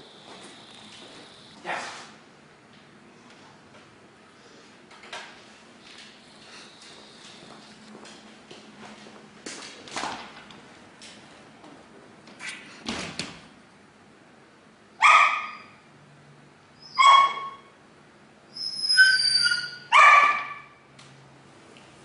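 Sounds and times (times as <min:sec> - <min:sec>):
dog barking: 0:15.0 - 0:15.7, 0:17.0 - 0:17.6, 0:19.9 - 0:20.7.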